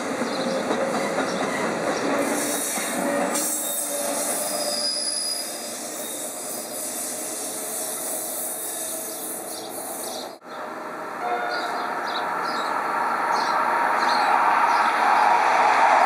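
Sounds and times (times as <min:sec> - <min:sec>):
train rolling past: 0:00.0 - 0:16.0
high wheel squeal: 0:02.3 - 0:10.3.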